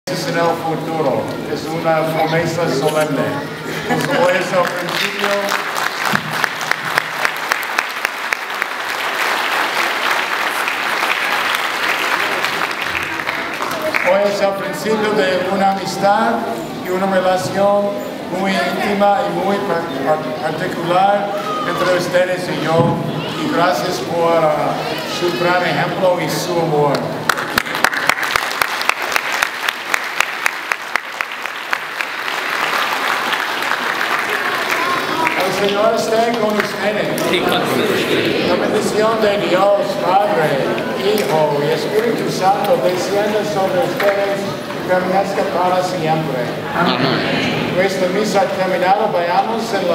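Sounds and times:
congregation applauding: 0:03.8 - 0:14.8, 0:27.2 - 0:40.1
close hand claps: 0:04.0 - 0:14.3, 0:26.9 - 0:37.3.

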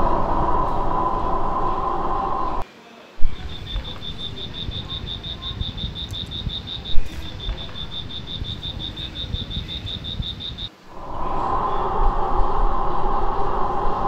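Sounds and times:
low rumble: 0:00.0 - 0:02.6, 0:03.2 - 0:14.0
high-pitched chirping call: 0:03.2 - 0:10.7.

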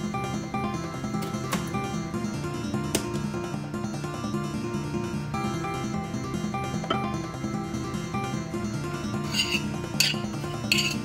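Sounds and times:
plucked acoustic guitar music: 0:06.7 - 0:07.3.

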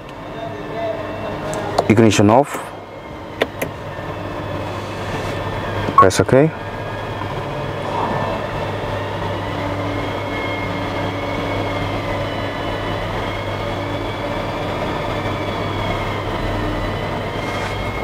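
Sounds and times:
faint wavering whine: 0:00.4 - 0:16.3
steady hum: 0:02.7 - 0:12.9.

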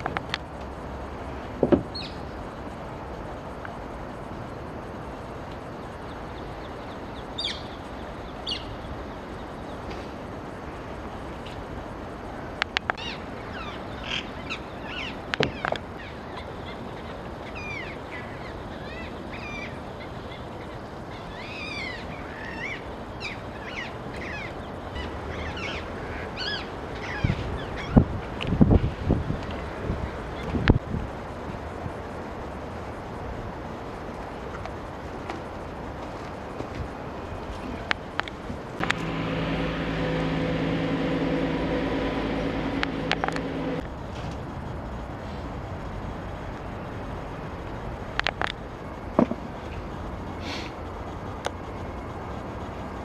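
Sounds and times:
steady background hiss: 0:28.2 - 0:53.0.

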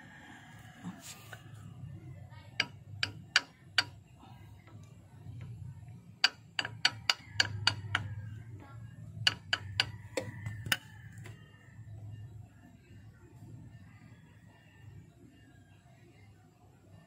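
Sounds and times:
steady low hum: 0:00.0 - 0:17.0
hand tool clicking on bolt: 0:02.6 - 0:04.0, 0:06.2 - 0:08.1, 0:09.3 - 0:10.8.

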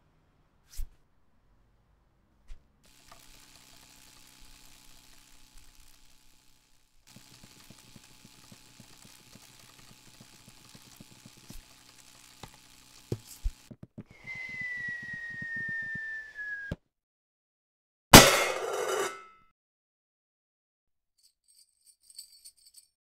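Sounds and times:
light quick tapping footsteps: 0:07.1 - 0:16.4
whistled note sliding down: 0:14.1 - 0:16.8.

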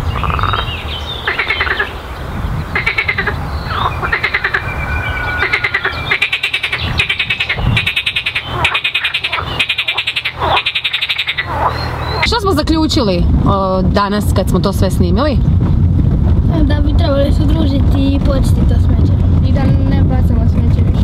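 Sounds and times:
frogs croaking: 0:00.0 - 0:12.6.

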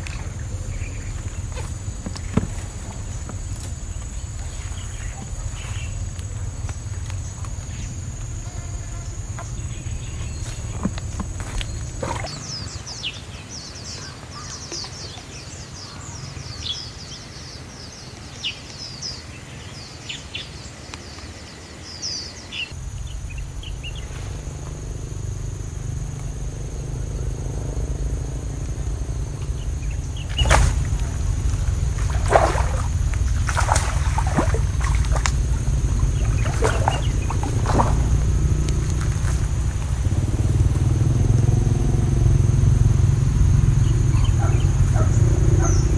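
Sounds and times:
steady low rumble: 0:00.0 - 0:13.0, 0:22.7 - 0:45.9
small birds chirping: 0:00.0 - 0:45.9
fish splashing in water: 0:28.5 - 0:40.6.

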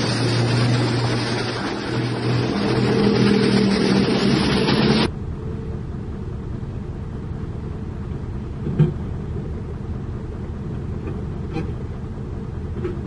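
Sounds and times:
road traffic: 0:00.0 - 0:13.0
truck diesel engine running: 0:00.0 - 0:13.0.

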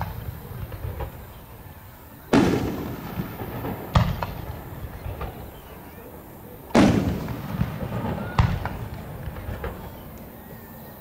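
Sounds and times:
firework shells booming: 0:00.0 - 0:10.5
sharp firework bang: 0:02.3 - 0:05.8, 0:06.7 - 0:10.1.

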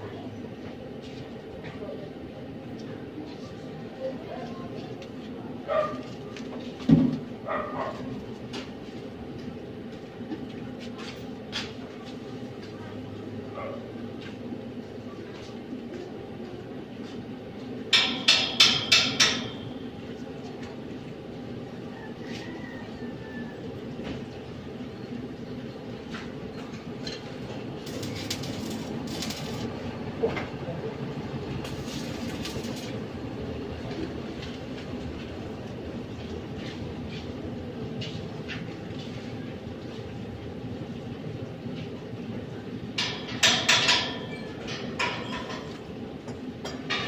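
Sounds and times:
steady low hum: 0:23.6 - 0:43.4
arc welding crackle and hiss: 0:26.0 - 0:37.4.

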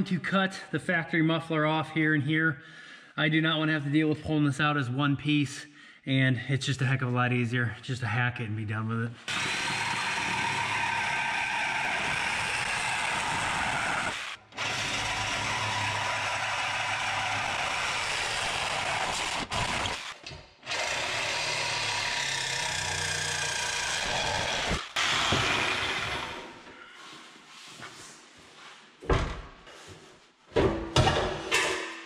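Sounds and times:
reciprocating saw cutting steel pipe: 0:09.3 - 0:26.6.

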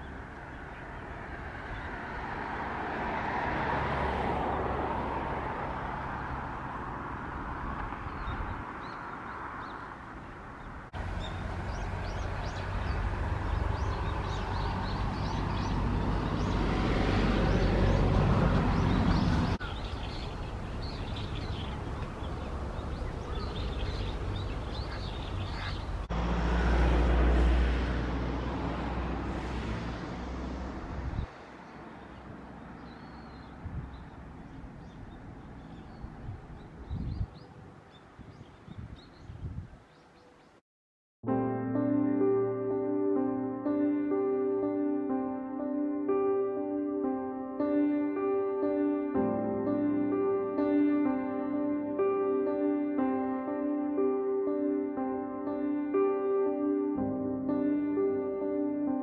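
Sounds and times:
distant road traffic rumble: 0:00.0 - 0:40.6.

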